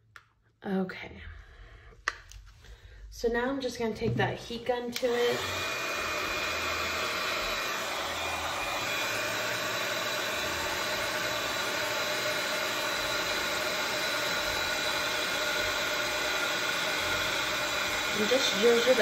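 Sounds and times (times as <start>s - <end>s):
heat gun blowing air: 4.9s - 19.0s.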